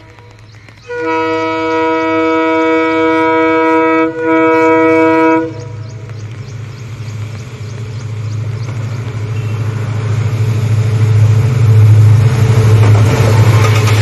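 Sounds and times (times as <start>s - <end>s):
locomotive engine rumble: 0.0s - 14.0s
two-tone train air horn: 0.9s - 5.8s.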